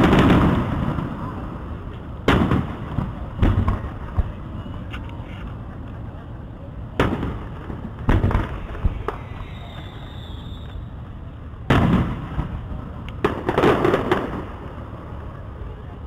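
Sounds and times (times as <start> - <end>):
fireworks bangs: 0.0 - 4.9, 6.8 - 11.0, 11.6 - 15.4
fireworks crackling pops: 0.0 - 6.1, 6.8 - 15.2.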